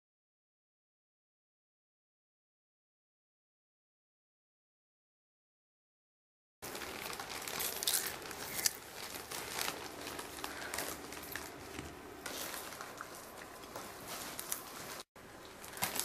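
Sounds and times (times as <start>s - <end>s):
foil snack bags crinkling: 6.6s - 16.0s.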